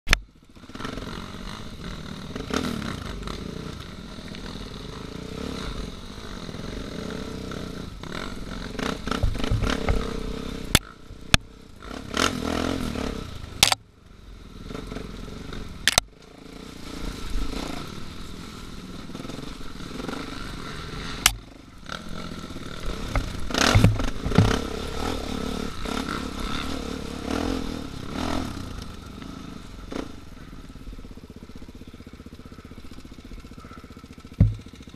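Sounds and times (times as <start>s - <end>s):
motorcycle engine revving: 0.1s - 34.9s
motorcycle clattering over rocks: 8.8s - 11.5s, 13.6s - 13.8s, 15.8s - 16.1s, 22.8s - 24.9s, 33.0s - 34.9s
sharp knocks: 23.1s - 24.6s, 34.4s - 34.8s.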